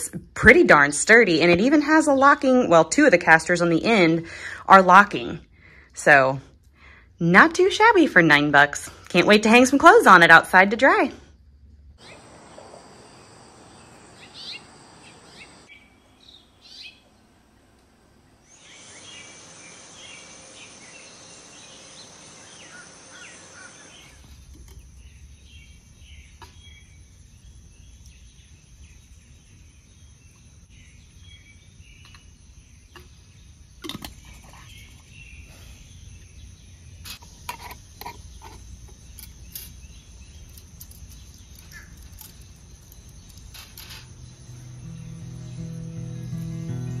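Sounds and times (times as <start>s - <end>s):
high insect buzz: 12.0s - 29.0s, 37.0s - 47.0s
birds chirping: 12.0s - 37.3s, 38.0s - 47.0s.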